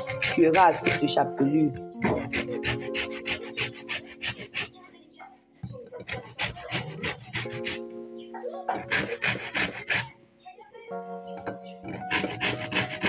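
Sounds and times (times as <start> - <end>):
bread scraping on metal grater: 0.0 - 1.2, 2.0 - 4.8, 6.0 - 7.8, 8.7 - 10.2, 11.9 - 13.0
background music with held notes: 0.0 - 13.0.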